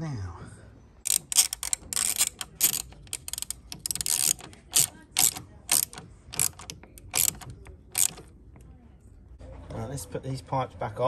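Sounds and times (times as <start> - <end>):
socket ratchet clicking: 1.0 - 8.3.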